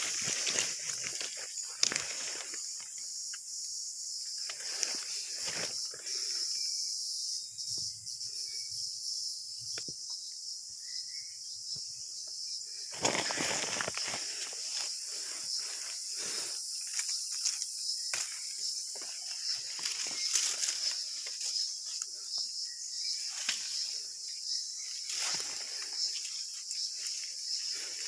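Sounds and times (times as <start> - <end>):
leaves and brush rustling: 0.0 - 6.4, 12.8 - 28.0
insects chorus: 0.0 - 28.0.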